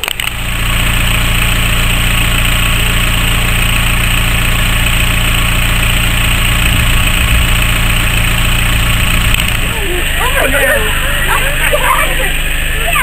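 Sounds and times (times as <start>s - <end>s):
diesel locomotive engine throbbing: 0.0s - 13.0s.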